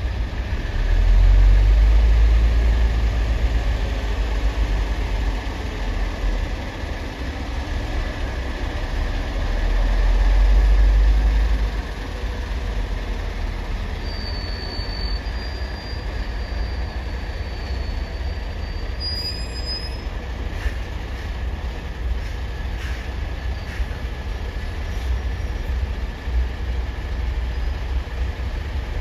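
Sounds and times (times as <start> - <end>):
heavy vehicles rumbling: 0.0 - 29.0
thin high squeal: 14.0 - 20.1.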